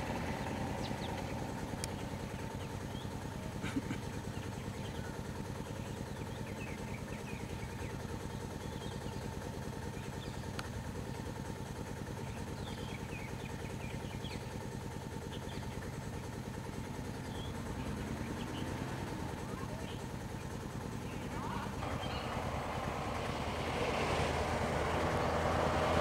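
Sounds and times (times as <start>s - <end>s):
vehicle engines idling: 0.0s - 26.0s
faint bird chirps: 4.0s - 10.5s, 12.2s - 14.6s, 17.0s - 22.5s.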